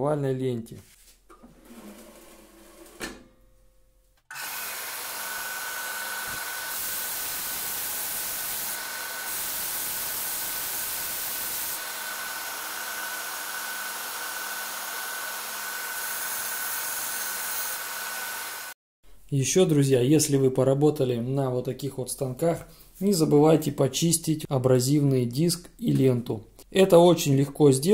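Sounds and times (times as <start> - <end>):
belt sander running: 4.3 - 18.8
wood sanding hiss: 4.4 - 18.8.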